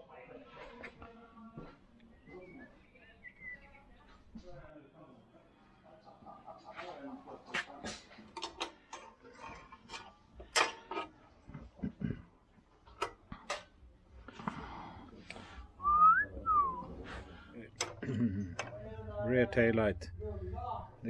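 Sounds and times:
motorcycle parts clicking and knocking: 0:07.6 - 0:12.0, 0:12.8 - 0:13.9, 0:17.7 - 0:18.9
person whistling: 0:15.8 - 0:16.9.

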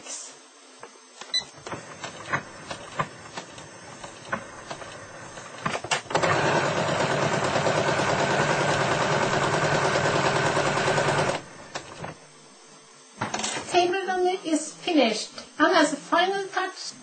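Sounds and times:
sewing machine running: 0:02.0 - 0:12.1.

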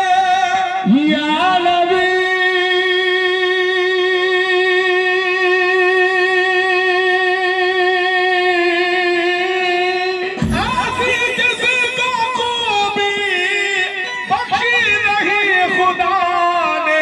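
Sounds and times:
harmonium: 0:00.0 - 0:17.0
drum strikes: 0:10.4 - 0:13.0.

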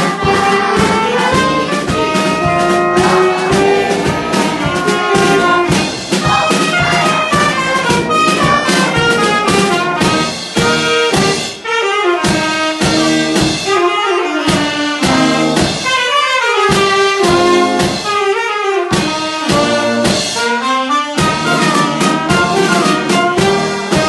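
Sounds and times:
brass band playing jazzy tune: 0:00.0 - 0:24.0
drum kit beat: 0:00.0 - 0:24.0.

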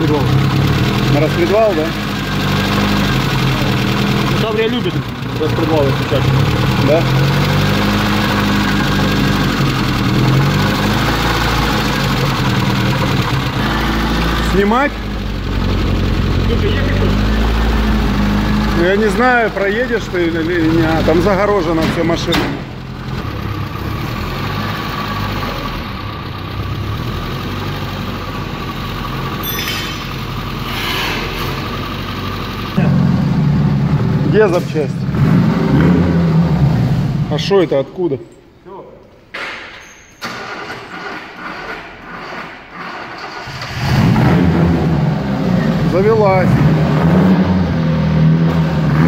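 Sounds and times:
car engine idling with knock: 0:00.0 - 0:17.3, 0:20.0 - 0:34.9
metallic clink: 0:29.4 - 0:30.2.

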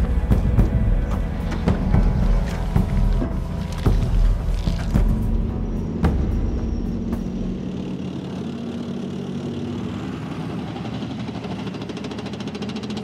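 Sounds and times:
tank diesel engine humming: 0:00.0 - 0:13.0.

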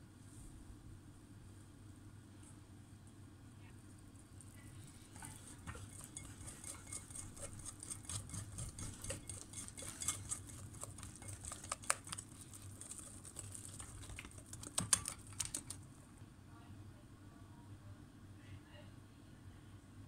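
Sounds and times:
whisk tapping glass bowl: 0:05.1 - 0:15.8.

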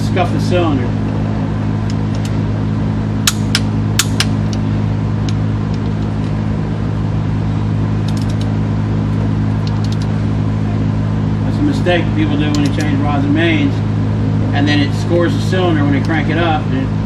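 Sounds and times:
machine hum: 0:00.0 - 0:17.0
pulsing rumble: 0:00.0 - 0:17.0
torque wrench clicks: 0:12.5 - 0:13.0.

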